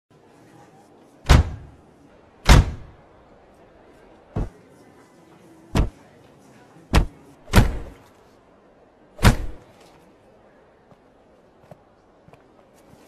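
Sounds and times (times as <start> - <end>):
car door slamming: 1.3 - 1.7, 2.5 - 2.9.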